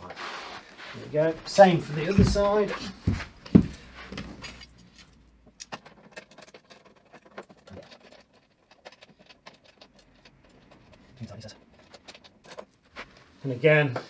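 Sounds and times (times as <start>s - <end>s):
screws clicking and scraping: 4.4s - 12.8s.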